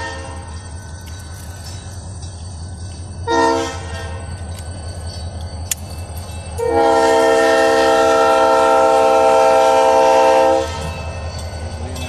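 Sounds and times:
locomotive air horn chord: 0:00.0 - 0:00.5, 0:03.2 - 0:04.2, 0:06.6 - 0:10.9.

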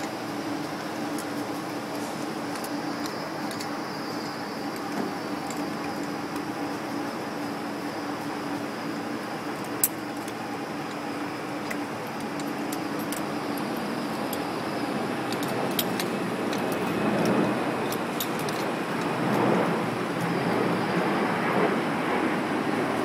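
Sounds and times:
street traffic noise: 0:00.0 - 0:23.0
metallic clicks of climbing hardware: 0:01.9 - 0:06.5, 0:11.6 - 0:14.5, 0:15.2 - 0:19.1.

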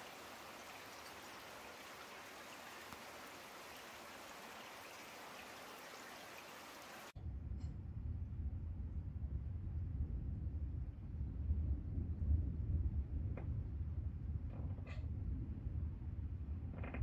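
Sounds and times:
steady rain hiss: 0:00.0 - 0:07.2.

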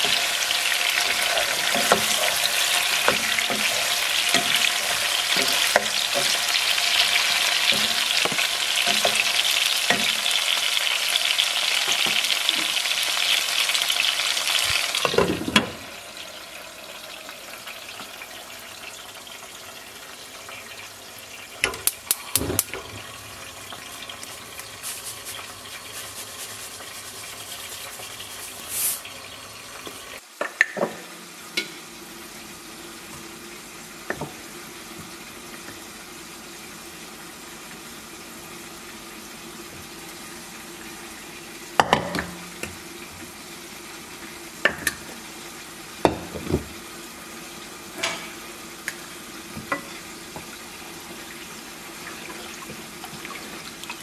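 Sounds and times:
utensils and pots clinking: 0:00.0 - 0:10.7, 0:14.7 - 0:15.9, 0:21.6 - 0:29.1, 0:47.9 - 0:48.5
sizzling on the stove: 0:00.0 - 0:54.0.

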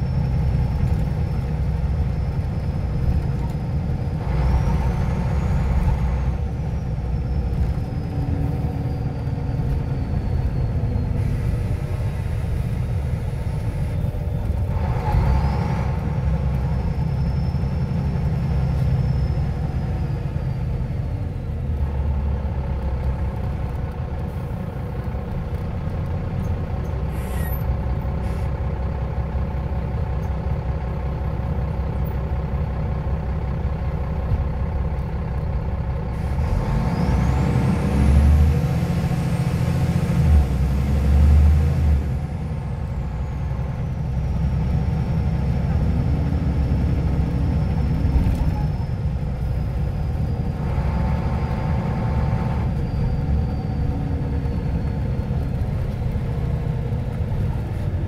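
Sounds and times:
bus engine drone: 0:00.0 - 0:58.0.

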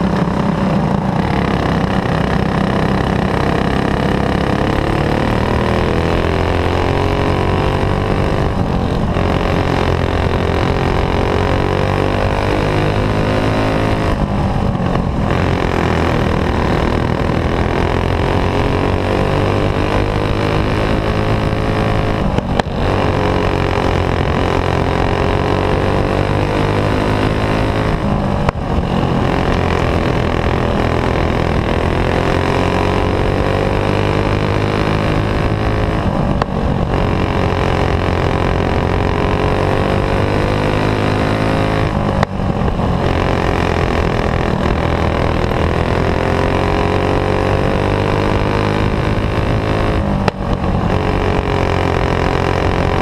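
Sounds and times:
kart engine running hard: 0:00.0 - 0:53.0.

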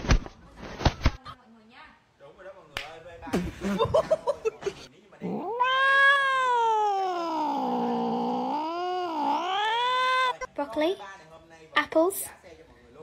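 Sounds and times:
cat yowling: 0:05.2 - 0:10.5.

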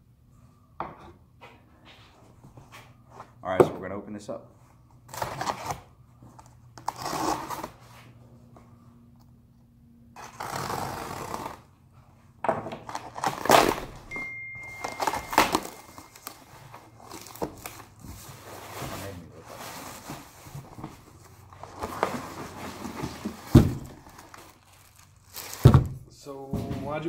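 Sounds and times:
packing tape ripping: 0:06.8 - 0:07.8, 0:10.2 - 0:11.7, 0:12.8 - 0:14.1, 0:23.3 - 0:26.0
cardboard flaps thumping and rustling: 0:21.7 - 0:24.4, 0:25.4 - 0:27.0.

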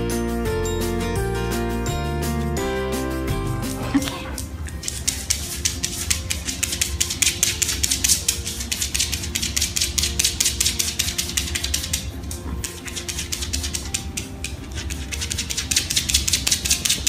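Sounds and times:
fingernails scratching dog fur: 0:04.8 - 0:17.0.

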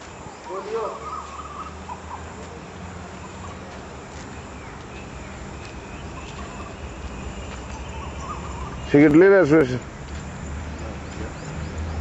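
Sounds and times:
faint bird chirps: 0:00.2 - 0:02.4, 0:04.3 - 0:09.0.

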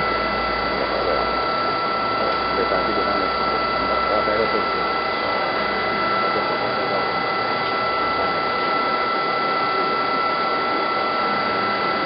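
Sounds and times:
lathe high whine and whirr: 0:00.0 - 0:12.0.

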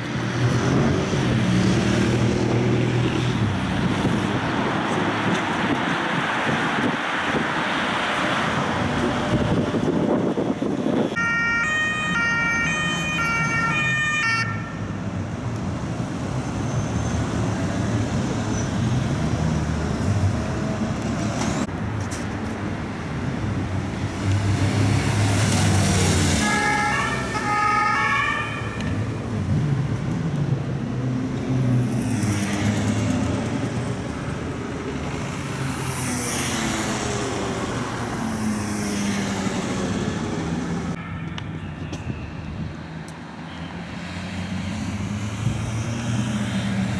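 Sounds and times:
motorcycle engines: 0:00.0 - 0:11.6
traffic noise: 0:00.0 - 0:46.9
two-tone siren: 0:11.2 - 0:14.8, 0:26.4 - 0:29.0, 0:41.0 - 0:42.4.

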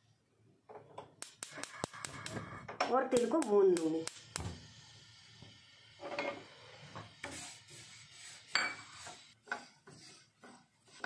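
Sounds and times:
spatula scraping a pan: 0:06.0 - 0:11.0.

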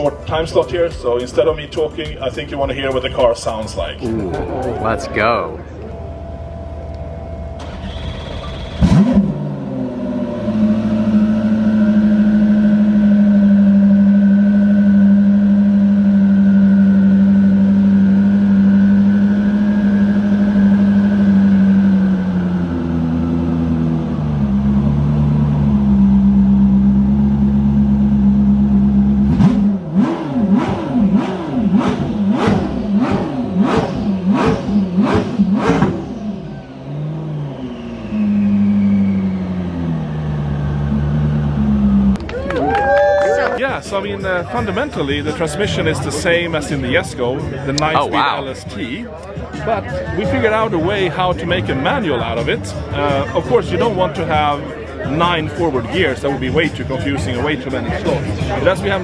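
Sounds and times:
engine throttle blips: 0:00.0 - 0:42.3
car engine starting and idling: 0:00.0 - 0:59.0.

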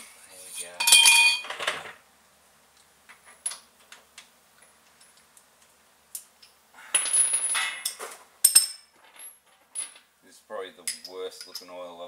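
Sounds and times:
hand tools clinking: 0:00.4 - 0:01.6, 0:06.4 - 0:10.0, 0:10.8 - 0:11.8.

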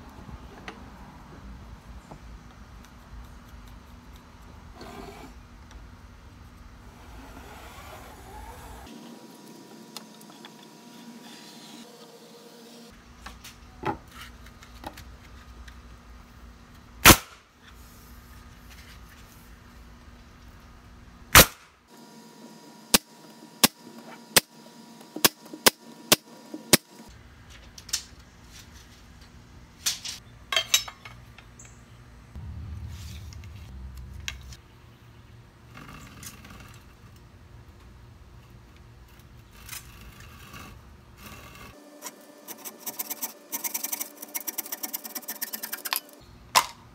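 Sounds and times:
nail gun shots: 0:17.0 - 0:17.5, 0:21.3 - 0:21.7.

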